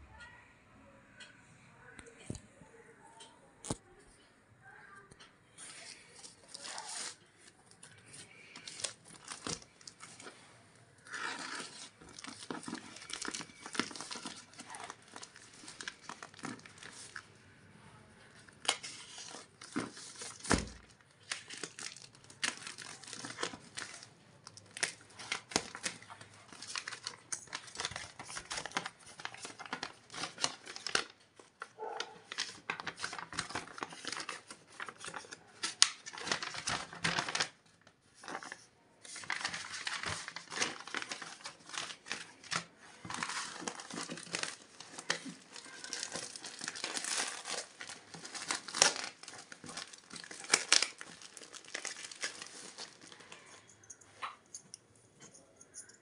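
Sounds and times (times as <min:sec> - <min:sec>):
plastic wrapping crinkling: 0:05.6 - 0:17.4, 0:18.2 - 0:53.7
packing tape tearing: 0:39.2 - 0:53.2.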